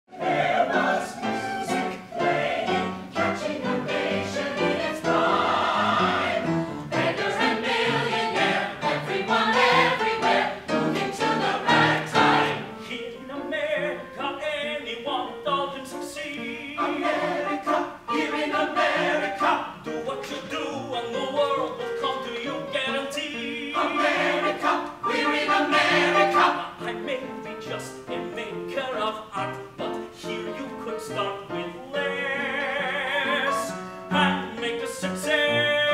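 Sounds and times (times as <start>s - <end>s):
man singing with vibrato: 12.7s - 17.9s, 19.0s - 24.8s, 26.0s - 35.9s.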